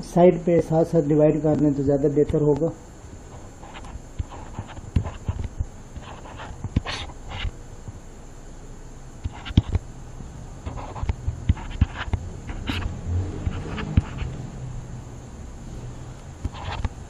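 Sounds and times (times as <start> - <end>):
steady low hum: 0.0 - 17.0
handwriting scratches: 3.3 - 7.5, 9.2 - 9.8, 10.6 - 14.4, 16.4 - 17.0.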